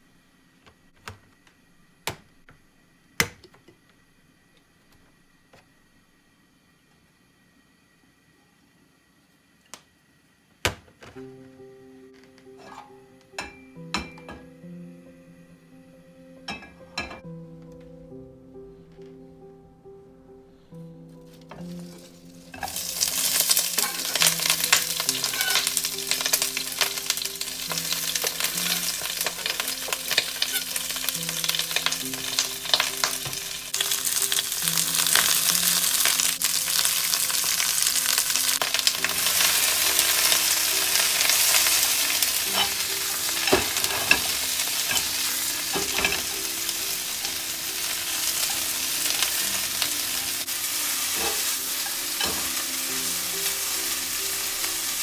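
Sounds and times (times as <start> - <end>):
food sizzling in a pan: 21.5 - 55.0.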